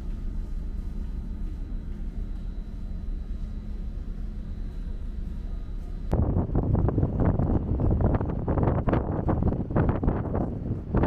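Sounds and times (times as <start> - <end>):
faint high whine: 0.0 - 9.1
ferry engine drone: 0.0 - 11.0.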